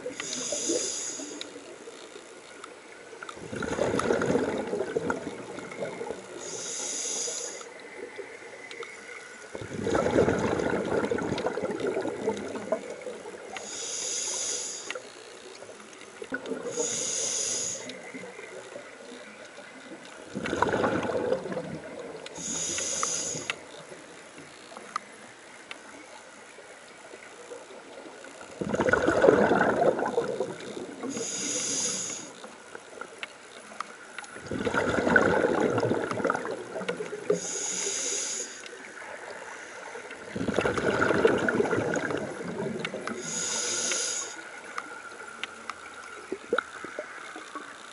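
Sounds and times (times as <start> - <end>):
regulator inhalation hiss: 0.0 - 1.6, 6.3 - 7.8, 13.5 - 15.1, 16.6 - 18.3, 22.3 - 23.6, 31.0 - 32.5, 37.2 - 38.9, 43.1 - 44.7
exhaled bubbles underwater: 3.2 - 6.5, 9.5 - 13.6, 16.2 - 17.1, 20.2 - 22.7, 27.8 - 32.0, 34.4 - 37.5, 40.0 - 43.6.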